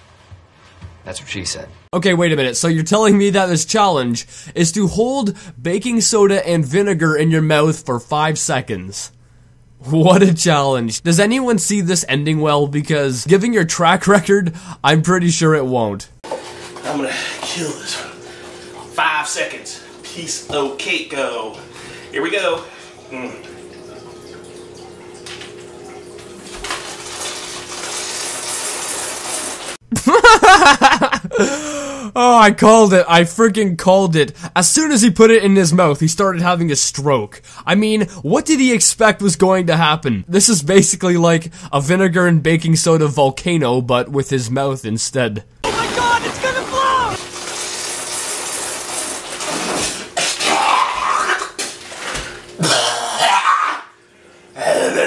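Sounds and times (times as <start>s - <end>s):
foam spluttering from mouth: 45.6s - 48.3s
man retching: 49.7s - 53.9s, 54.6s - 55.0s
man gagging and coughing: 52.6s - 53.6s.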